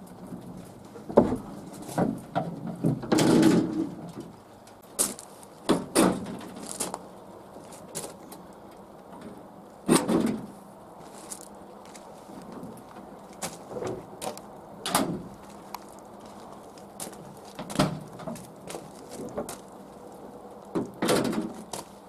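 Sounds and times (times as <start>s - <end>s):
metal clunks and clicks: 20.8s - 21.7s.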